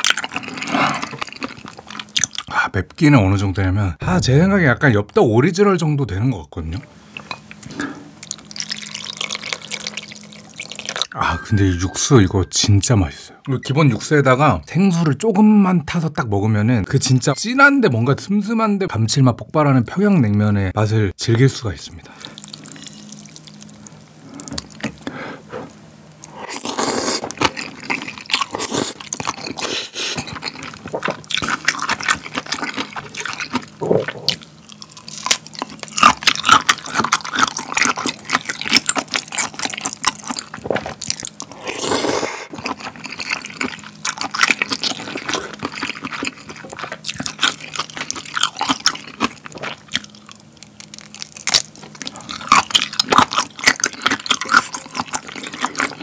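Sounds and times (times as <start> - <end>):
noodles being slurped: 0.0 - 2.4
wet chewing: 0.0 - 2.5, 7.5 - 11.1, 22.2 - 56.0.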